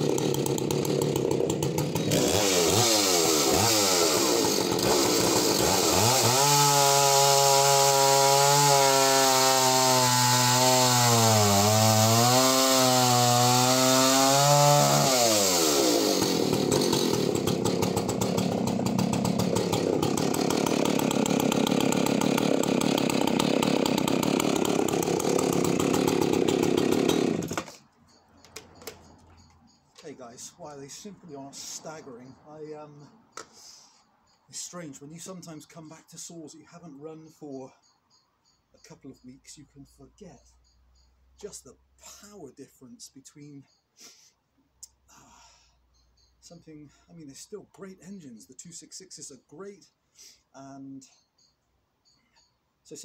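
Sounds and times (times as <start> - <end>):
chainsaw cutting a log: 0.0 - 27.8.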